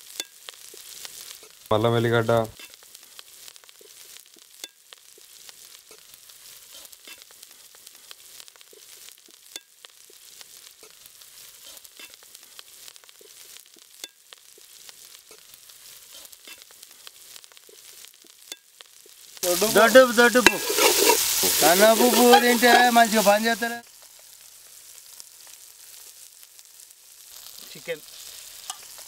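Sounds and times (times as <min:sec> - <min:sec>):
vegetables sizzling in hot oil: 0:00.0 - 0:29.0
metal ladle scraping pot: 0:19.6 - 0:23.0.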